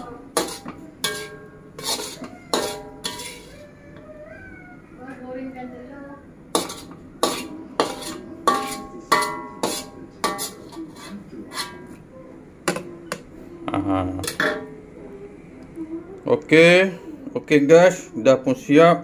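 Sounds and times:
metal utensil clinking on cookware: 0:00.0 - 0:03.5, 0:06.5 - 0:12.0, 0:14.2 - 0:14.8.

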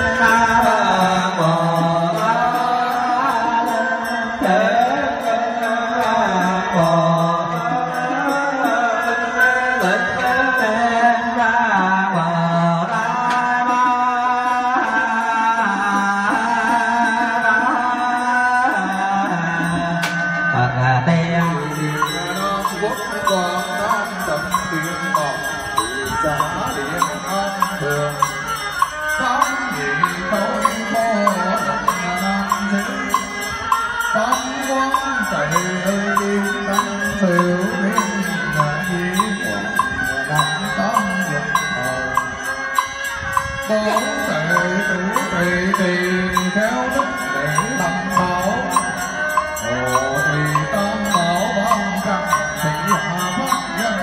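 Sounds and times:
monks chanting in unison: 0:00.0 - 0:54.0
wooden fish struck in steady beat: 0:21.4 - 0:54.0.

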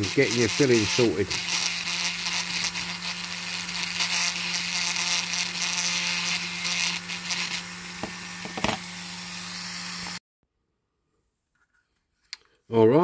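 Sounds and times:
rotary tool on metal: 0:00.0 - 0:08.9.

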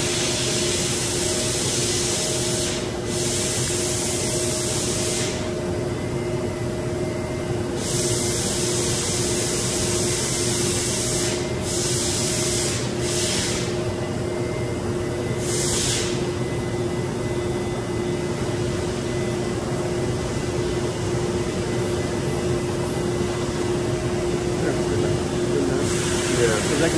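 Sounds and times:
hissing air bursts: 0:00.0 - 0:05.5, 0:07.8 - 0:13.8, 0:15.4 - 0:16.4, 0:25.8 - 0:26.9
industrial machine hum: 0:00.0 - 0:26.9.

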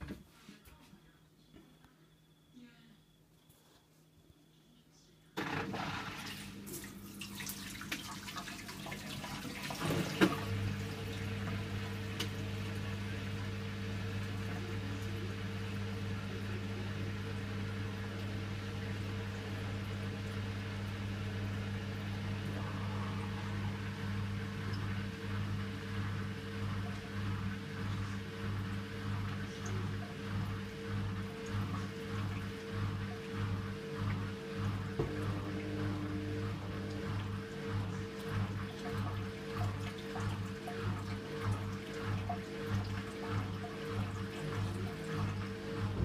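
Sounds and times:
water running into washing machine: 0:05.4 - 0:46.0
low steady hum: 0:09.7 - 0:46.0.

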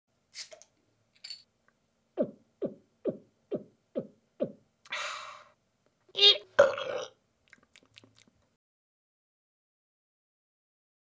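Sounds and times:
cartoon drinking gulps: 0:06.3 - 0:08.4.

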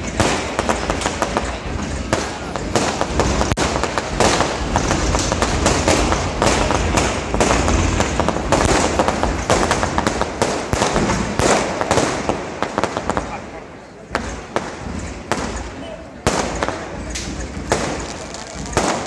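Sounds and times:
low rumble: 0:00.0 - 0:11.4
fireworks bangs and crackles: 0:00.0 - 0:19.0.

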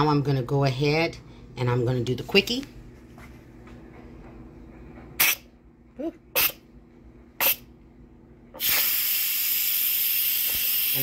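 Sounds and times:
steam hissing from valve: 0:08.6 - 0:11.0.

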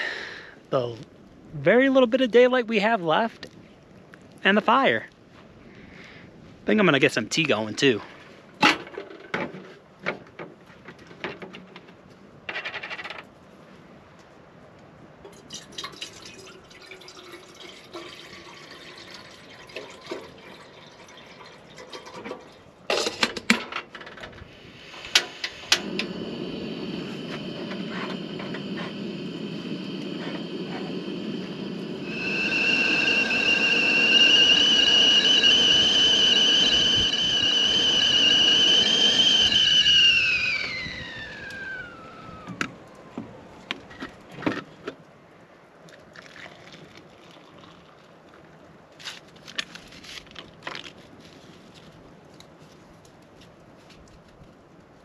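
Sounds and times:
water poured into kettle: 0:15.3 - 0:22.5, 0:46.2 - 0:48.1
gas burner rushing: 0:21.8 - 0:43.2
kettle whistling: 0:24.3 - 0:43.2.

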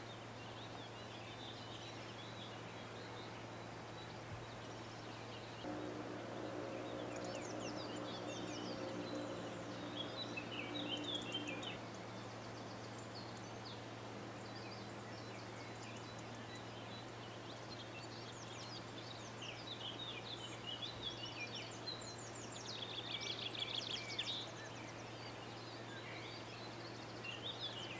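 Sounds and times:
songbirds chirping and trilling: 0:00.0 - 0:27.9
droning tone: 0:05.6 - 0:12.2
steady low hum: 0:05.6 - 0:14.4.

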